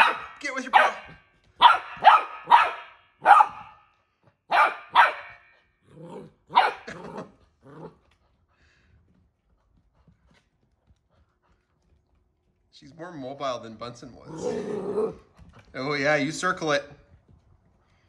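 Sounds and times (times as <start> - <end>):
puppy yapping: 0.0 - 3.8, 4.5 - 5.4, 6.5 - 7.3
puppy growling: 5.8 - 8.2, 14.1 - 15.7.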